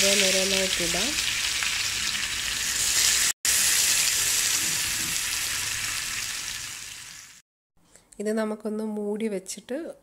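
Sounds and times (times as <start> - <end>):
fish sizzling in hot oil: 0.0 - 7.4.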